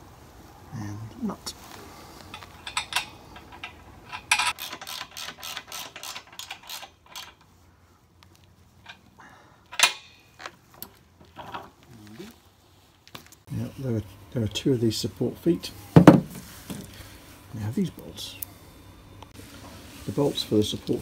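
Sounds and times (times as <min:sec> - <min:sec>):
wheel nut clicking and rattling: 0:02.2 - 0:07.6, 0:08.2 - 0:11.8.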